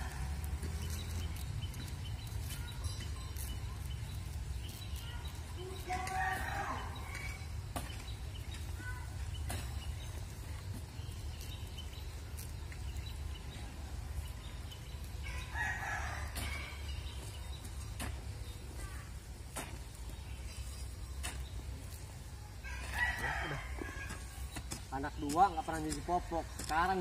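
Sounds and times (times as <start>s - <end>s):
hoe chopping into soil: 7.7s - 8.7s, 9.3s - 10.2s, 17.9s - 18.4s, 19.5s - 20.0s
rooster crowing: 22.7s - 24.2s.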